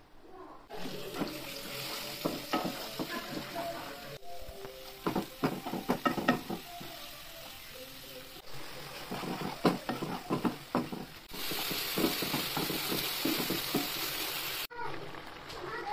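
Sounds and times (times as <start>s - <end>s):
frying in hot oil: 0.7s - 15.9s
tomato sizzling in pan: 0.7s - 15.9s
spatula scraping frying pan: 8.6s - 14.0s.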